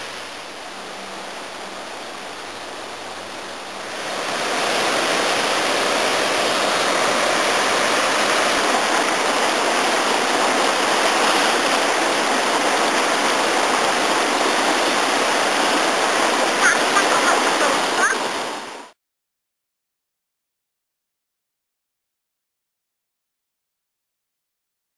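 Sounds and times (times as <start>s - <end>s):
fast-flowing water rushing: 0.0s - 19.0s.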